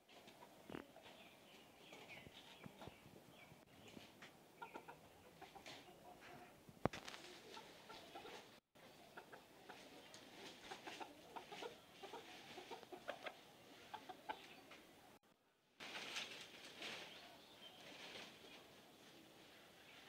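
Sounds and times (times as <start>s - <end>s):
rooster clucking faintly: 7.2s - 14.8s.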